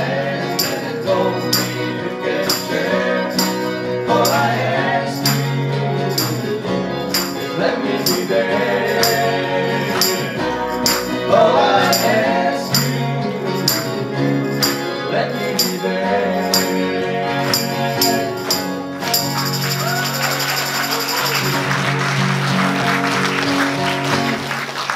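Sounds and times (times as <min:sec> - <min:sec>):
voices singing: 0:00.0 - 0:21.6
keyboard: 0:00.0 - 0:24.8
acoustic guitar: 0:00.0 - 0:24.9
bass guitar: 0:00.0 - 0:24.9.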